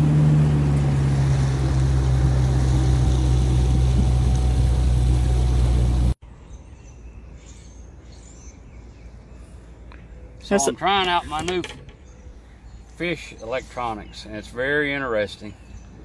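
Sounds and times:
outboard motor running: 0.0s - 6.2s.

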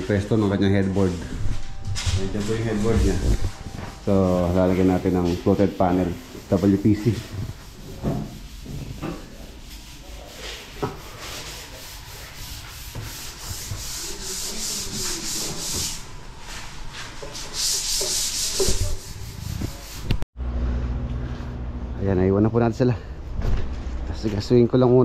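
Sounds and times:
sanding strokes: 2.3s - 20.2s.

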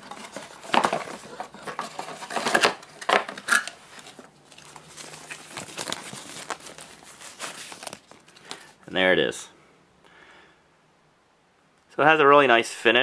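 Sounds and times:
cardboard packaging rustling: 0.0s - 8.9s.

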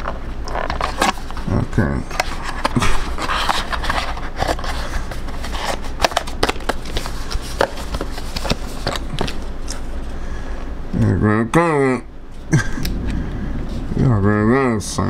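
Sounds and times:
steady low hum: 0.0s - 15.0s
cardboard box being opened: 0.6s - 1.5s, 2.2s - 9.5s.

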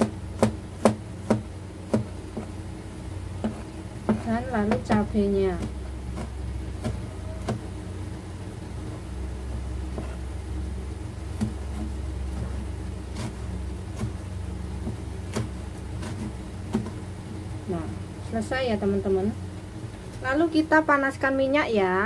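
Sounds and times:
knife chopping on plastic board: 0.0s - 2.6s, 3.3s - 7.8s, 8.8s - 10.3s, 11.2s - 17.0s
steady low hum: 0.0s - 22.0s.

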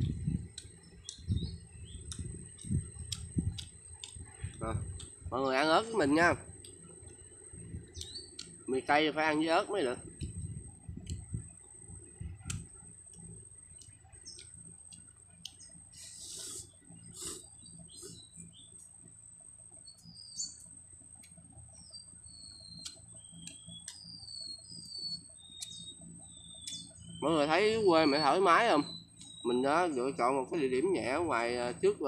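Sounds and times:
small birds chirping: 0.0s - 32.0s
chopsticks and spoon clicking: 0.1s - 5.2s, 7.9s - 8.6s.

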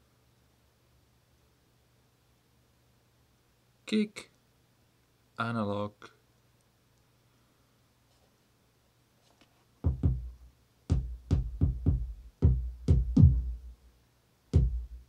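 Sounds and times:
electronic kick drum thumps: 9.8s - 13.8s, 14.5s - 15.0s.

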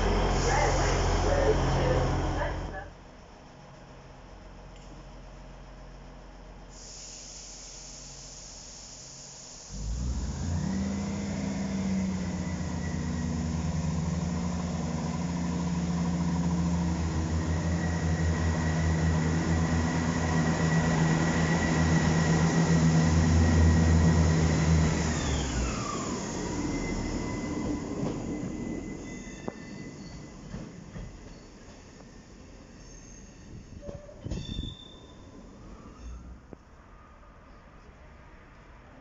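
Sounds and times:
diesel train engine throbbing: 0.0s - 3.6s, 9.6s - 32.7s.

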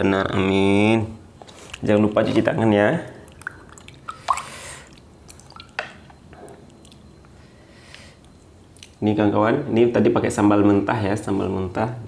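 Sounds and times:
faint drips: 1.4s - 9.0s
water splashing over hands: 3.2s - 5.8s.

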